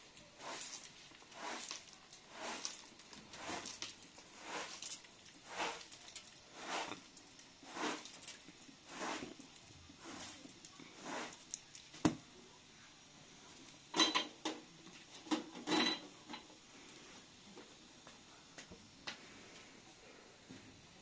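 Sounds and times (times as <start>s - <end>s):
straw broom sweeping rugs: 0.0s - 12.1s.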